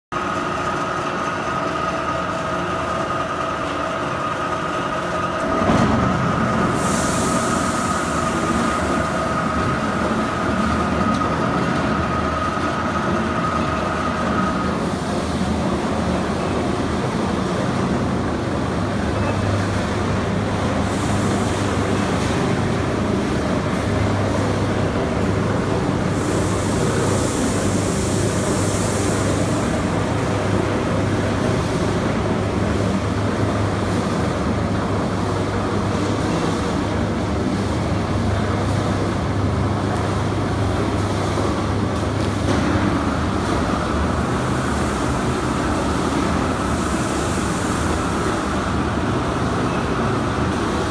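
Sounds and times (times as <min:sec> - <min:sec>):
machinery rumble: 0:00.2 - 0:50.9
hiss: 0:06.5 - 0:10.7, 0:20.4 - 0:39.1, 0:42.3 - 0:50.9.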